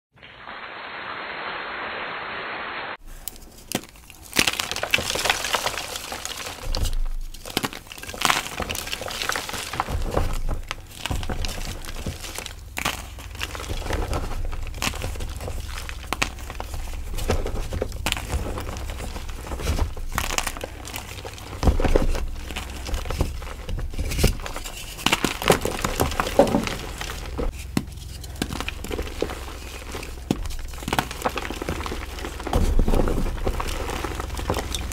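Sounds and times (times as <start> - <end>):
muffled hiss: 0.2 - 3.2
chalk crunching and cracking: 3.1 - 34.9.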